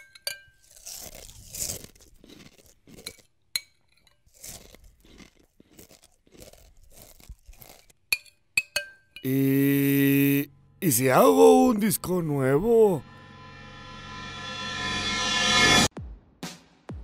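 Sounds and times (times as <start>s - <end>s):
spoon clinking against bowl: 0.0s - 0.6s, 8.1s - 9.3s
crunchy cereal chewing: 0.5s - 8.6s.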